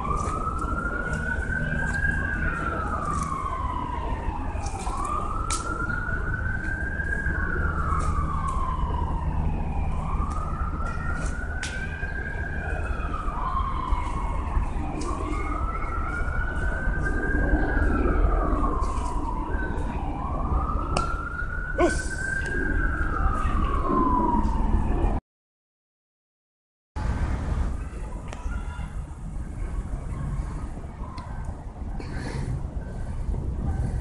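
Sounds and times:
emergency siren wailing: 0.0s - 25.2s
steady low rumble: 0.0s - 25.2s, 27.0s - 34.0s.

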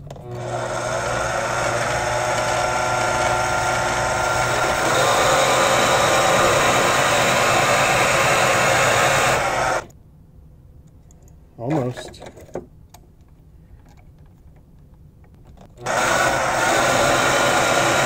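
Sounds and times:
lathe motor whining: 0.2s - 9.9s, 15.8s - 18.0s
turning tool cutting metal rod: 0.2s - 9.9s, 15.8s - 18.0s.

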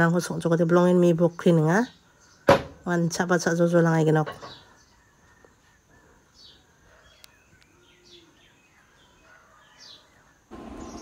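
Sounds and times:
bird chirps: 4.3s - 11.0s.

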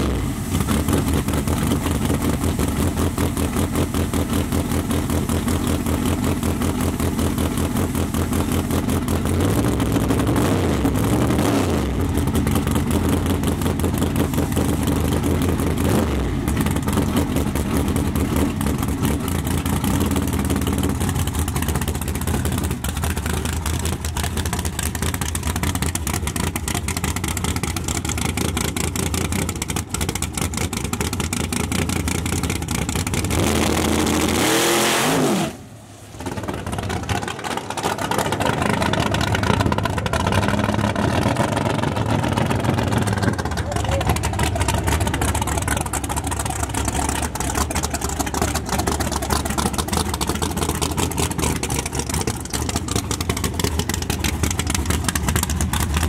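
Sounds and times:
drag car engine idling: 0.0s - 34.4s, 35.6s - 56.0s
car launching and accelerating: 33.2s - 43.4s.

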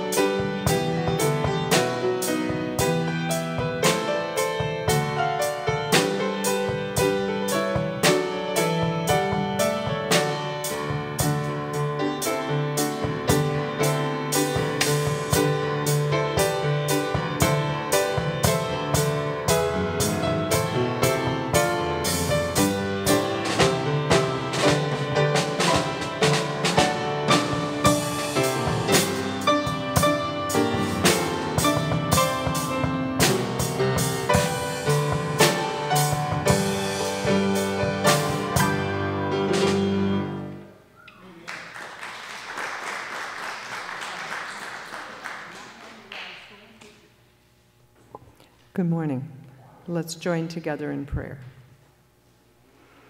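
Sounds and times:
drum kit steady beat: 0.0s - 40.5s
grand piano: 0.0s - 41.1s.

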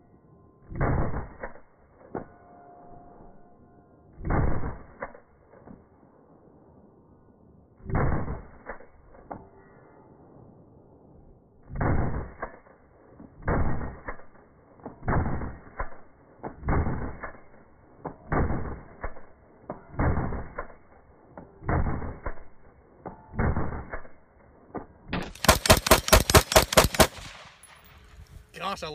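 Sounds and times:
rifle shots: 4.2s - 5.2s, 7.8s - 9.0s, 11.7s - 12.7s, 13.4s - 22.7s, 23.3s - 24.2s, 25.1s - 28.2s.

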